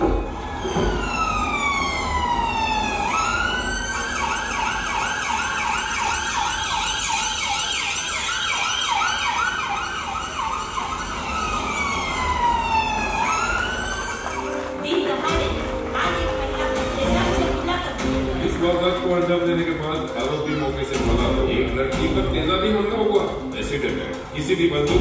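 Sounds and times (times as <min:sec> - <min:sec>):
electronic siren: 0:00.0 - 0:14.8.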